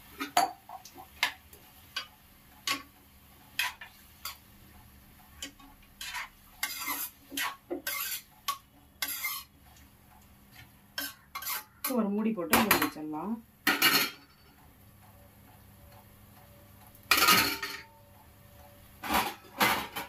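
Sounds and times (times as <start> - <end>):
metal ladle scraping metal pan: 3.6 - 4.4, 6.0 - 9.6, 11.0 - 12.0.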